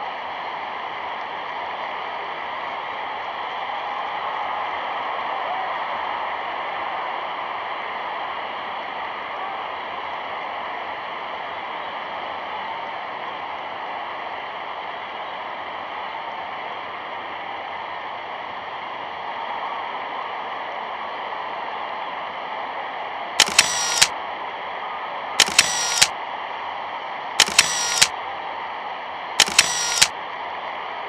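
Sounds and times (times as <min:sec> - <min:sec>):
camera shutter click and whirr: 0:23.4 - 0:24.2, 0:25.4 - 0:26.2, 0:27.4 - 0:28.2, 0:29.4 - 0:30.2.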